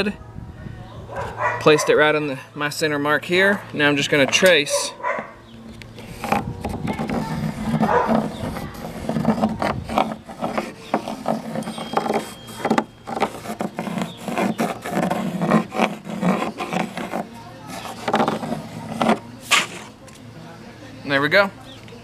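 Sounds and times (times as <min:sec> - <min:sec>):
pencil scratching on plywood: 0:06.0 - 0:20.0.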